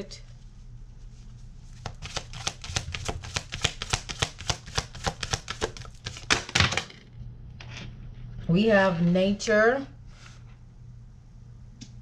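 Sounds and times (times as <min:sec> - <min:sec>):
cards being shuffled: 0:01.7 - 0:06.8.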